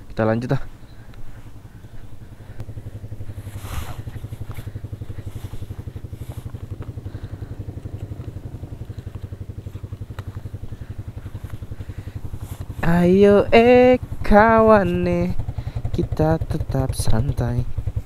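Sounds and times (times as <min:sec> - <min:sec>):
motorcycle engine idling: 0:00.0 - 0:18.0
gloves rustling: 0:01.1 - 0:12.9.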